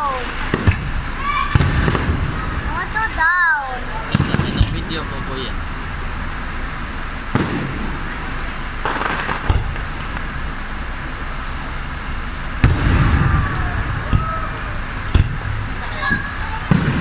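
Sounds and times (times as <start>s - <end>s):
fireworks bursting with bangs: 0.0s - 17.0s
fireworks crackling: 0.0s - 17.0s.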